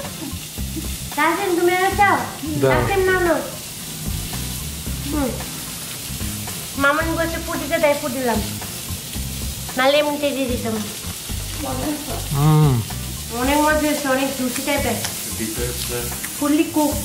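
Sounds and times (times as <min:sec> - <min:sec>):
steady hiss: 0:00.0 - 0:17.0
person singing a slow melody: 0:12.2 - 0:12.9.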